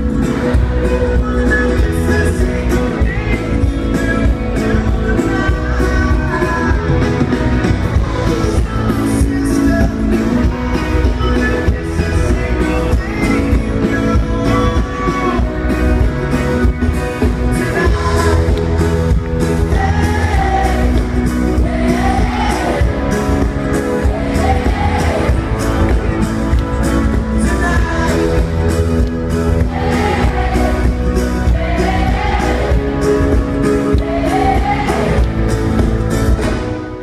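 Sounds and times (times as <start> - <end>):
steady drum beat: 0.0 - 36.8
live pop-rock band playing: 0.0 - 37.0
person singing: 0.2 - 16.6, 17.2 - 26.2, 27.2 - 29.0.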